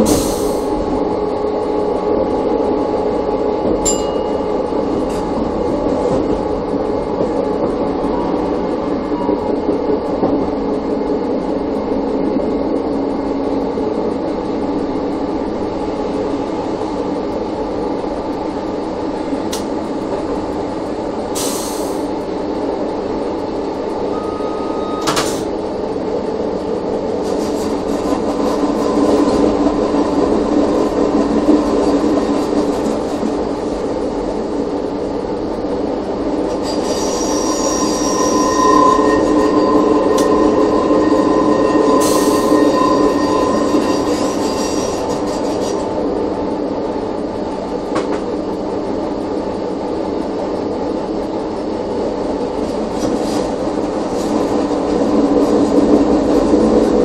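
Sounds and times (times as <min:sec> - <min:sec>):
railcar humming on rails: 0:00.0 - 0:57.0
high-pitched wheel squeal: 0:24.1 - 0:25.2, 0:36.5 - 0:45.8.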